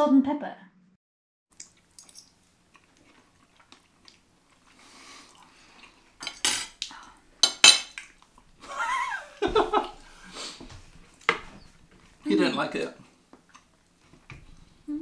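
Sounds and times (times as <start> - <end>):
forks clinking on ceramic plate: 6.2 - 6.8, 7.4 - 8.0
person laughing: 8.6 - 10.1.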